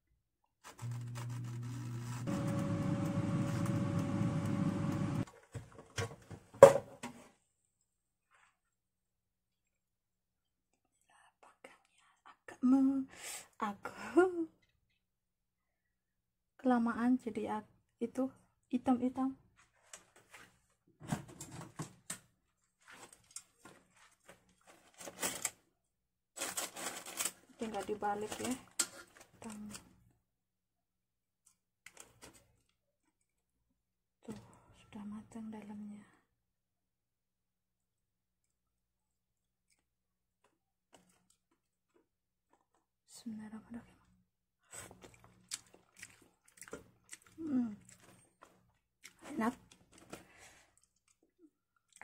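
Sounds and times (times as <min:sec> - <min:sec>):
air fryer fan whirring: 0:00.8 - 0:05.2
paper rustling: 0:22.6 - 0:25.6, 0:26.4 - 0:29.3.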